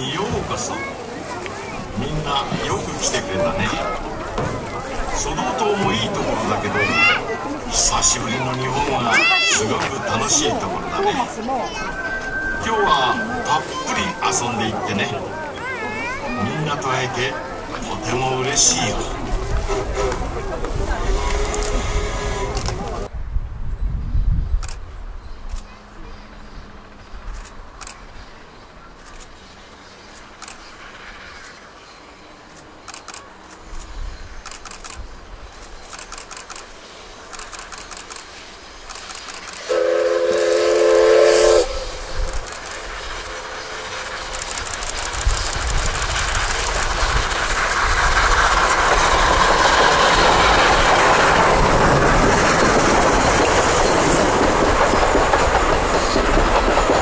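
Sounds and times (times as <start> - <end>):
wheels clickety-clack over rail joints: 0.0 - 23.1, 42.3 - 57.0
train rolling rumble: 0.0 - 57.0
steam locomotive exhaust chuffs: 1.5 - 23.1, 29.0 - 57.0
steam whistle: 39.6 - 44.4.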